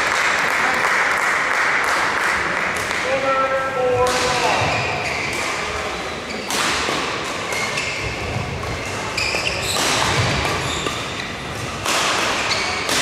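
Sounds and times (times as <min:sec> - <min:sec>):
racket hitting shuttlecock: 0:04.0 - 0:05.8, 0:06.4 - 0:13.0
shoes squeaking on court floor: 0:04.3 - 0:13.0.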